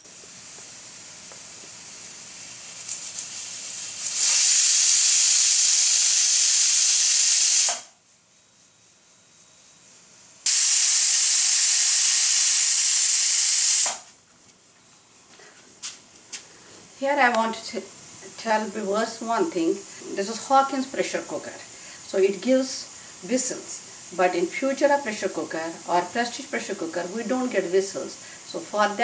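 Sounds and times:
quiet steam hiss: 0.0 - 29.0
pressure cooker whistling: 4.1 - 7.9, 10.5 - 14.0.

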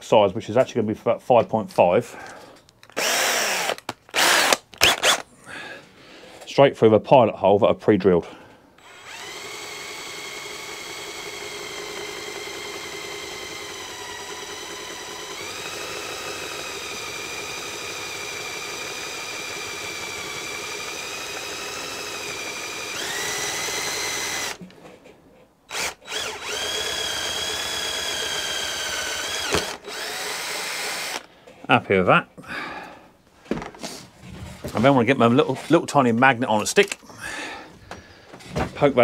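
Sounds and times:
cordless drill whining: 2.2 - 5.3, 8.8 - 24.9, 25.7 - 31.4.

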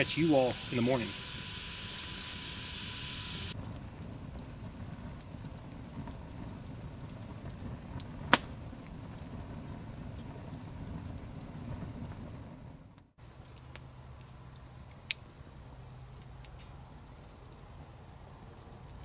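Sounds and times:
steady hiss: 0.0 - 3.6
campfire crackling: 0.0 - 19.0
sharp pop from fire: 8.0 - 8.6.

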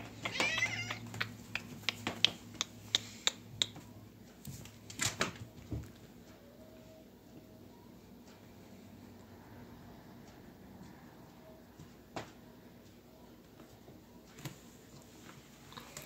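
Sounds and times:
cat meowing: 0.2 - 1.1.

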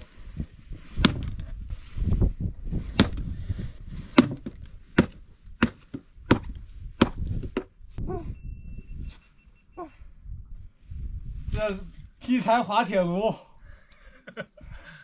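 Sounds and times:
axe chopping log: 1.0 - 1.3, 2.9 - 3.3, 4.1 - 7.7.

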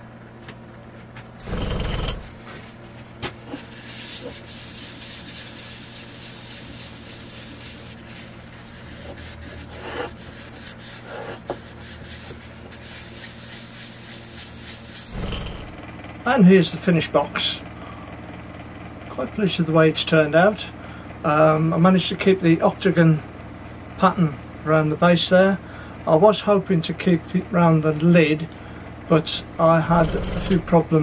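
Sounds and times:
cloth rubbing wooden box: 3.5 - 15.2.

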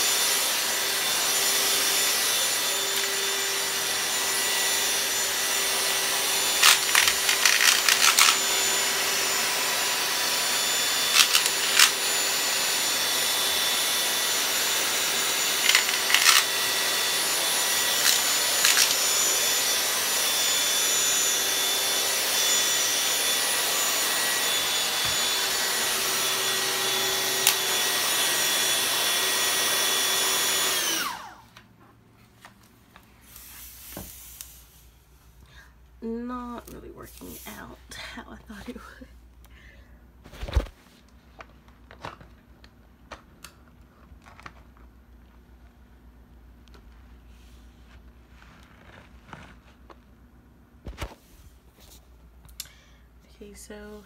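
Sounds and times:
vacuum motor whine: 0.0 - 31.7
debris rattling in vacuum: 6.3 - 8.9, 11.0 - 12.2, 15.4 - 17.0, 17.8 - 19.3.

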